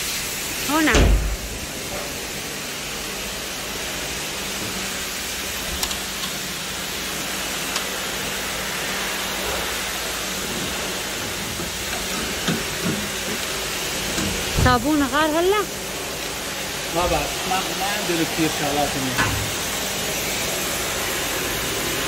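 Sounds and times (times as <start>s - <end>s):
water spraying on car: 0.0s - 22.0s.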